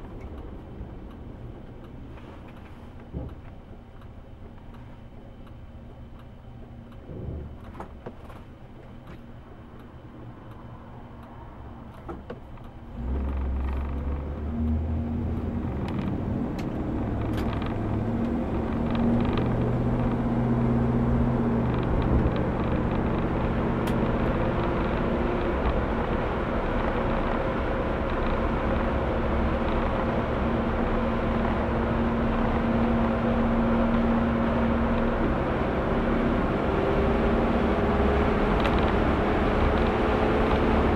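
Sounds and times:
road noise: 0.0s - 40.9s
car engine running: 11.1s - 40.9s.

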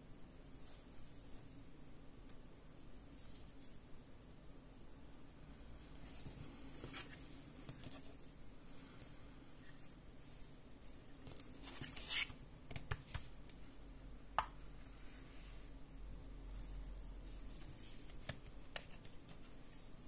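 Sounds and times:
plastic objects being handled: 6.0s - 8.4s.

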